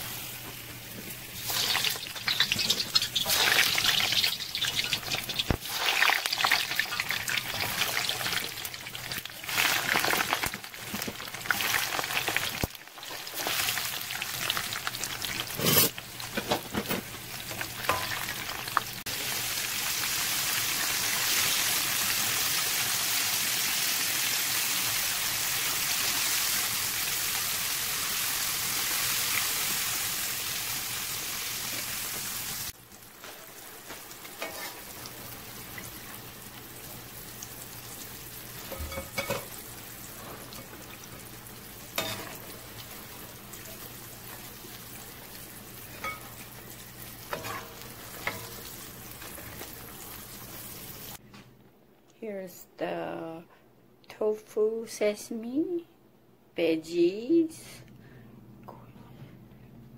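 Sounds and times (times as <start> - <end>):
tofu sizzling in hot oil: 0.0 - 16.5, 17.1 - 51.2.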